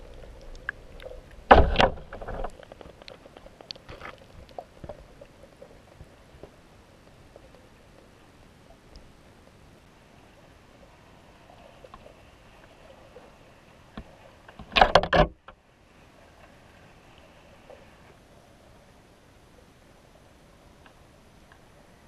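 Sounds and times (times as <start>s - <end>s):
faint underwater hiss: 15.6s - 22.0s.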